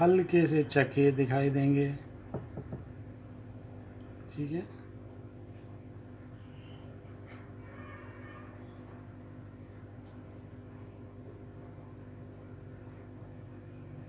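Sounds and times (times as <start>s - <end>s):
steady low hum: 0.0s - 14.0s
pencil scratching on paper: 2.2s - 3.9s, 8.2s - 14.0s.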